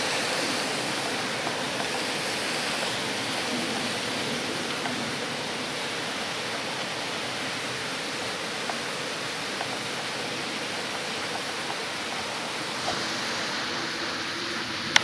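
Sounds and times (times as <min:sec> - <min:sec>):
waterfall rushing water: 0:00.0 - 0:15.0.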